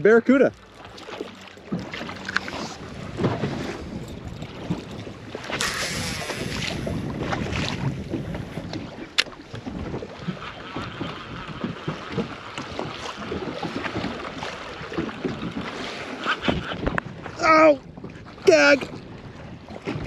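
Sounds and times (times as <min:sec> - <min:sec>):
water slapping boat hull: 0:00.0 - 0:20.0
wind on microphone: 0:00.5 - 0:20.0
fishing reel clicking: 0:05.4 - 0:07.0.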